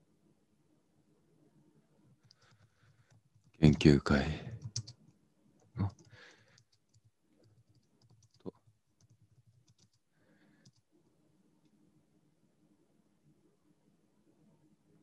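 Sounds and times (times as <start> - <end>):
faint keyboard typing: 2.1 - 12.0.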